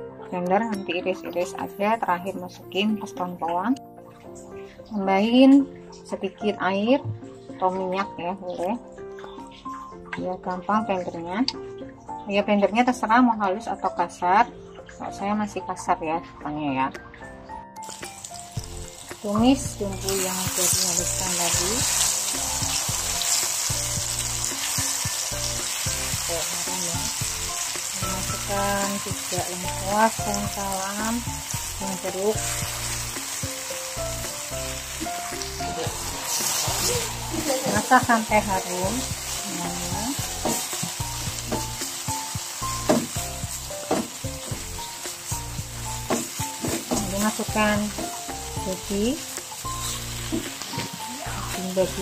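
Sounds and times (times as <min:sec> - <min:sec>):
spice paste sizzling in hot oil: 0:17.8 - 0:52.0.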